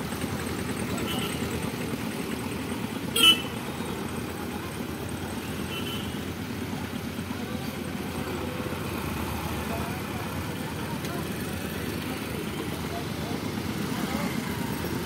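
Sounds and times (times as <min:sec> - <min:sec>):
road traffic rumbling: 0:00.0 - 0:15.0
vehicle horn toot: 0:03.1 - 0:03.6.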